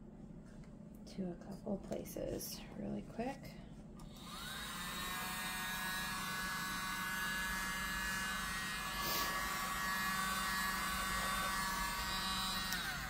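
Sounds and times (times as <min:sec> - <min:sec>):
electric blower motor whine: 0:04.0 - 0:13.0.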